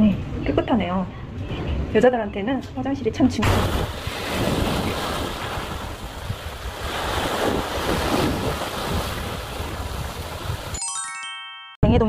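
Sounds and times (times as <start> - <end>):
waves breaking over rocks: 3.4 - 10.8
wind buffeting the microphone: 3.5 - 10.7.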